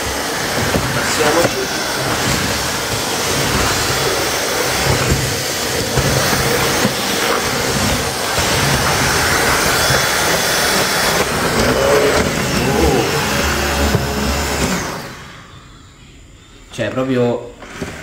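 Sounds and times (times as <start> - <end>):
cordless stick vacuum running: 0.0 - 15.7.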